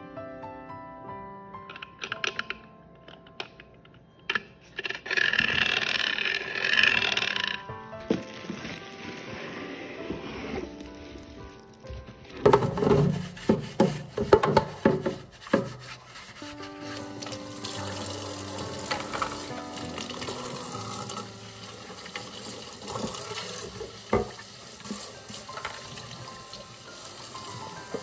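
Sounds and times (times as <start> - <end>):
plastic wrap crinkling: 5.0 - 13.0
plastic being scrubbed: 8.0 - 21.2
tap running into metal sink: 22.1 - 26.6.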